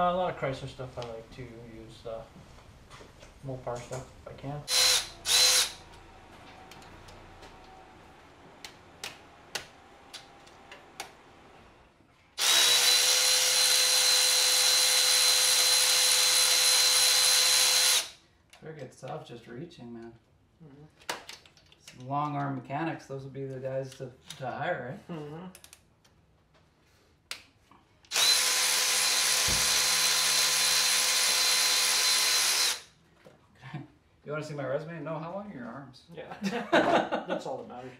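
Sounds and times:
cordless power tool whining: 0:04.7 - 0:06.0, 0:12.4 - 0:18.2, 0:28.1 - 0:32.9.

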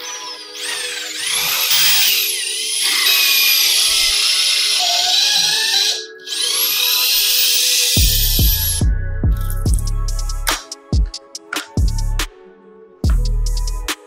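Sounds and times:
power tool motor whining: 0:00.0 - 0:08.8
background music: 0:00.0 - 0:14.0.

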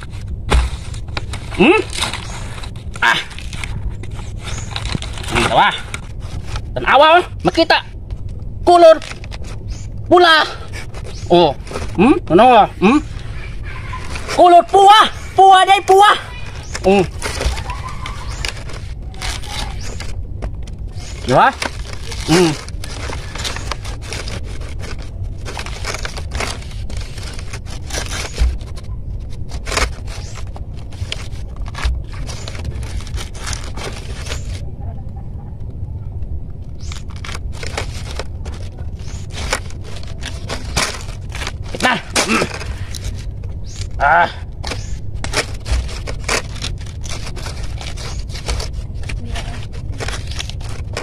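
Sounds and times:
fruit peel tearing by hand: 0:00.0 - 0:07.6, 0:08.7 - 0:34.6
steady low rumble: 0:00.0 - 0:51.0.

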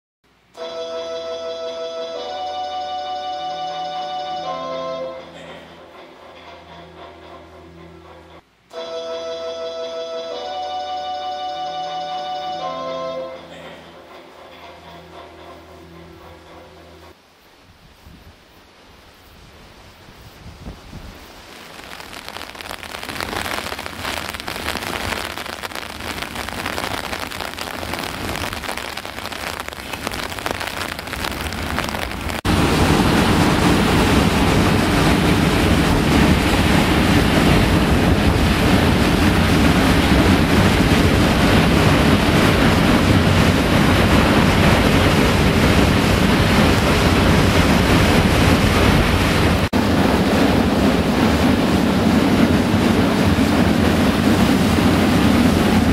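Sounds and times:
water rushing over spillway: 0:21.1 - 0:55.9.

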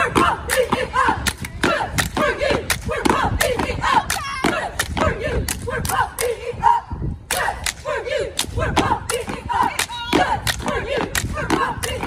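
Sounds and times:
cheerleaders chanting: 0:00.0 - 0:12.0.

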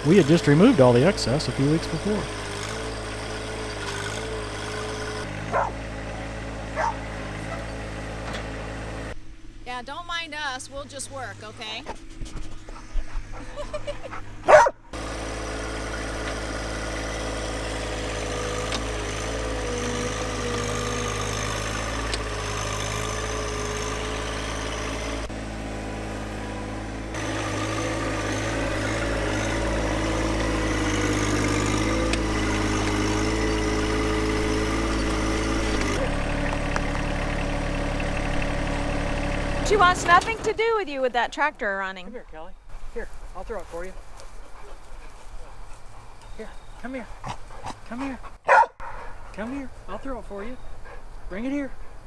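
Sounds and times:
loader scraping dirt: 0:00.0 - 0:09.2, 0:11.4 - 0:41.8
tractor diesel engine running: 0:00.0 - 0:52.0.

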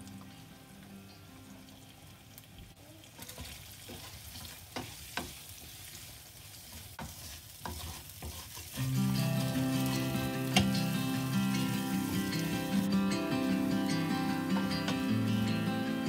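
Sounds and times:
potatoes sizzling in oil: 0:00.0 - 0:16.0
spatula scraping and tapping pan: 0:03.3 - 0:12.5.

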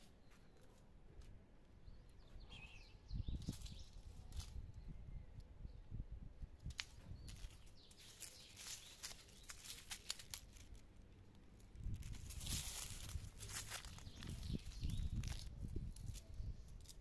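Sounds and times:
leafy plant stems rustling: 0:03.3 - 0:04.7, 0:06.6 - 0:17.0
light clicks and crackles: 0:06.6 - 0:17.0.

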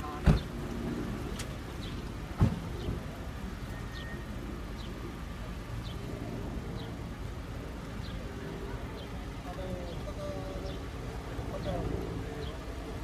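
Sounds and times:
sharp thump: 0:02.4 - 0:02.7.

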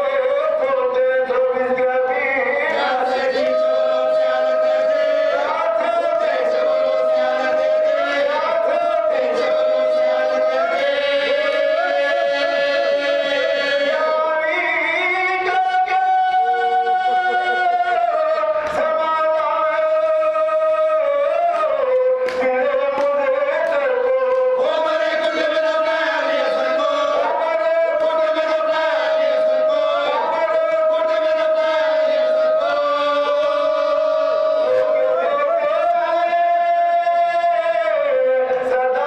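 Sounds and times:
men chanting into a microphone: 0:00.0 - 0:39.0.

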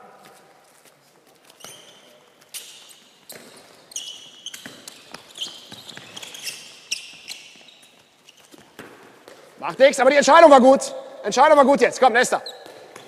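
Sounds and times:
shoes squeaking on floor: 0:00.0 - 0:09.8, 0:12.2 - 0:13.0.

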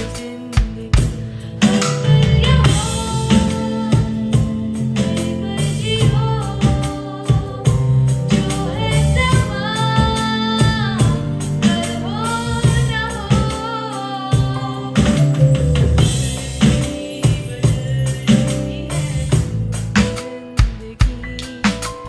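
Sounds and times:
girl singing into a microphone: 0:00.0 - 0:15.4
backing track: 0:00.0 - 0:22.0
electronic drum kit: 0:00.0 - 0:22.0.

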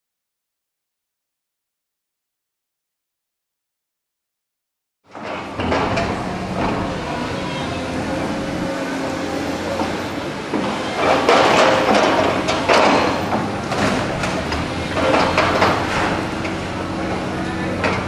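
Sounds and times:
engine humming: 0:05.1 - 0:18.0.

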